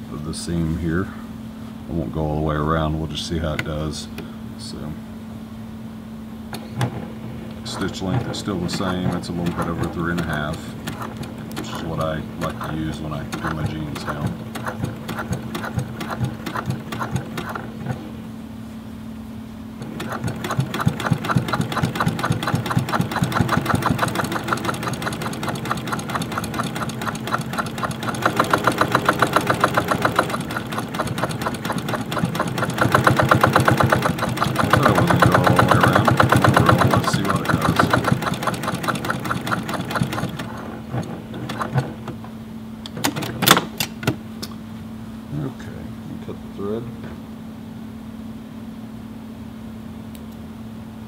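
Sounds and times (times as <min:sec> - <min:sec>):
sewing machine running fast: 0:07.7 - 0:18.1, 0:19.8 - 0:42.0
sharp clicks: 0:08.7 - 0:11.8, 0:12.4 - 0:17.7, 0:19.8 - 0:40.5.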